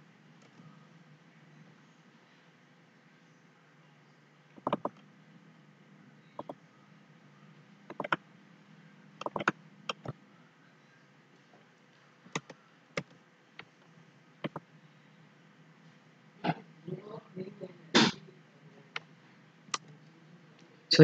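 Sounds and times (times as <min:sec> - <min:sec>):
faint low hum: 0:00.0 - 0:21.0
computer mouse clicking: 0:04.6 - 0:05.0, 0:07.9 - 0:08.2, 0:09.2 - 0:10.1, 0:14.4 - 0:14.6.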